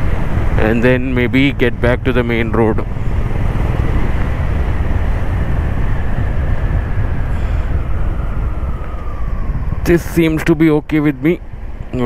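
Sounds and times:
wind noise on microphone: 0.0 - 12.0
faint whine falling in pitch: 5.9 - 11.0.

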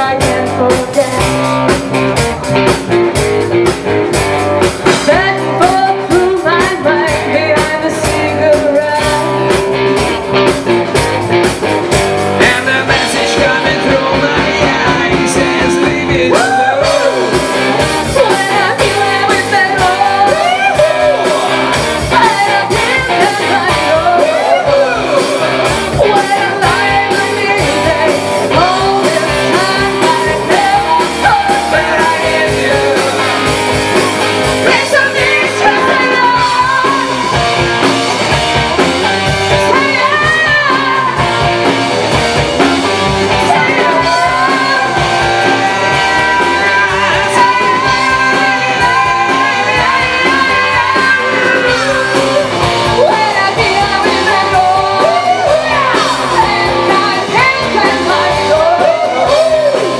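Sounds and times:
woman singing: 0.0 - 1.8, 4.8 - 9.7, 12.4 - 37.9, 39.2 - 41.7, 43.3 - 59.9
live rock band playing: 0.0 - 59.9
steady drum beat: 0.0 - 59.9
man singing: 12.4 - 37.5, 43.4 - 59.9.

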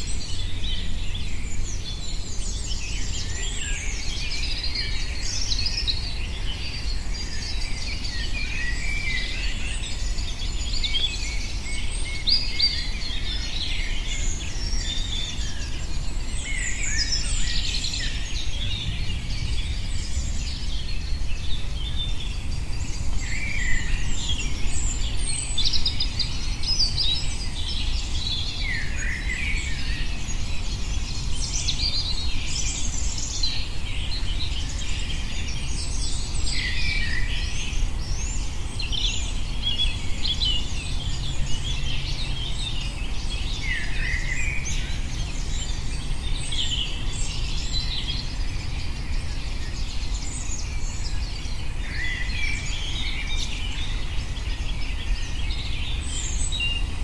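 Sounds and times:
birds singing and calling: 0.0 - 57.0
steady low rumble: 18.4 - 23.2.

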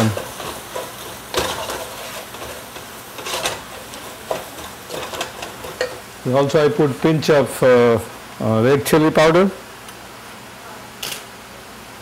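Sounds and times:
spoon scraping a pan: 0.0 - 6.0
spices sizzling in oil: 0.0 - 7.9.

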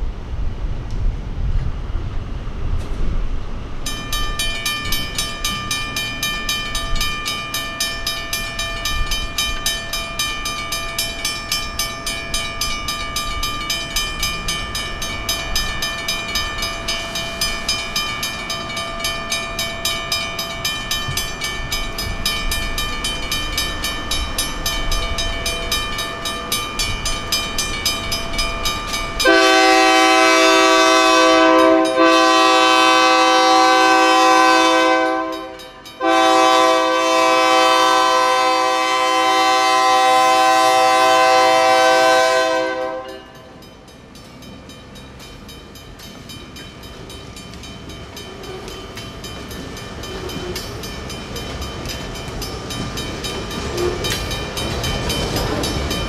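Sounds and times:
crossing bells clanging: 3.8 - 56.0
locomotive air horn: 29.2 - 43.3.

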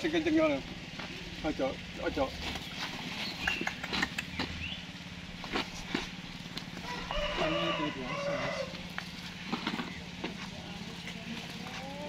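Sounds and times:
steady low hum: 0.0 - 12.0
scattered clicks: 3.4 - 4.6
rooster crowing: 6.8 - 8.9.

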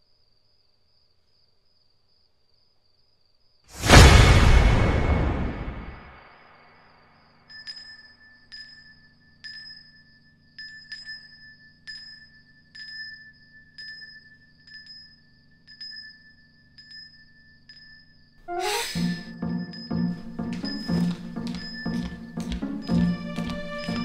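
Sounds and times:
steady ringing tone: 7.0 - 18.4, 19.2 - 24.0.

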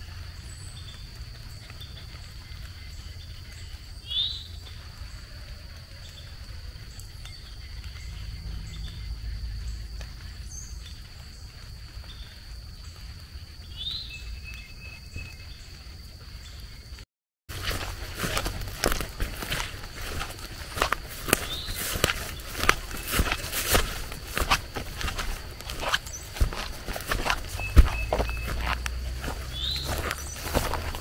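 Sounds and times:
high-pitched insect drone: 0.3 - 16.8, 17.5 - 31.0
rising bird chirps: 20.6 - 31.0.

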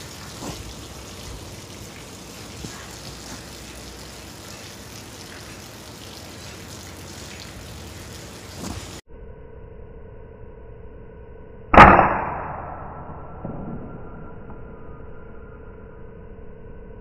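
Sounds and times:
steady outdoor background hiss: 0.0 - 9.0.

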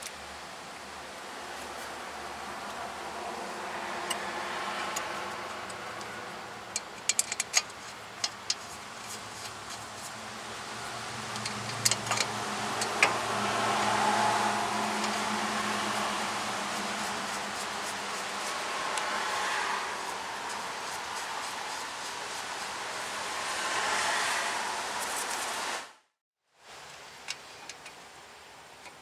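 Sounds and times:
light metallic clicks and clinks: 6.7 - 8.6
low engine hum: 8.0 - 25.8.

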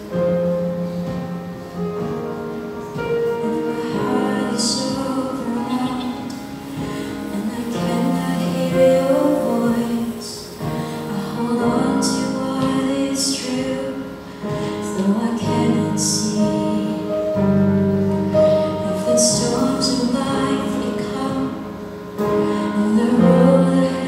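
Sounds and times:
backing singers: 3.2 - 17.6
woman singing into microphone: 3.2 - 24.0.

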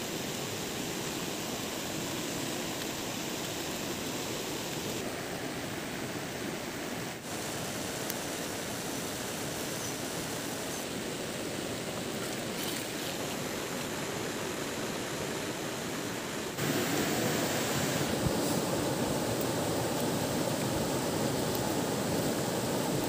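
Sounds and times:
stream rushing: 0.0 - 23.0.

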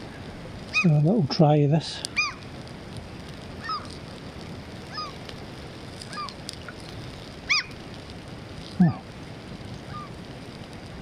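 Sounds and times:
gulls calling: 0.6 - 1.1, 2.0 - 2.5, 3.6 - 4.0, 4.8 - 5.3, 6.0 - 7.9, 9.7 - 10.2.

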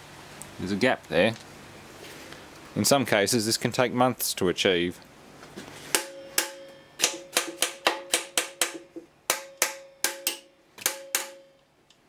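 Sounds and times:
hammer striking steel studs: 5.9 - 11.6.

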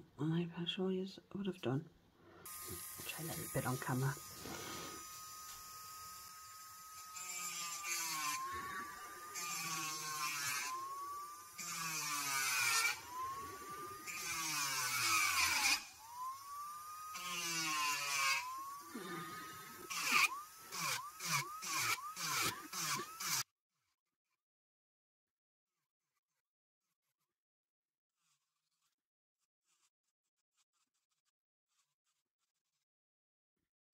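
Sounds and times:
drill bit grinding on nail: 2.4 - 23.5
electric nail drill whining: 2.4 - 23.5.

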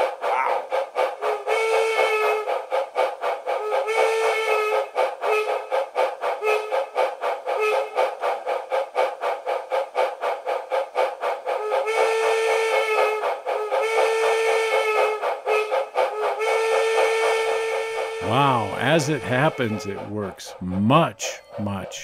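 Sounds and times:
steam locomotive chuffing: 0.0 - 22.0
train whistle blasts: 1.4 - 2.5, 3.6 - 5.6, 11.8 - 19.7.

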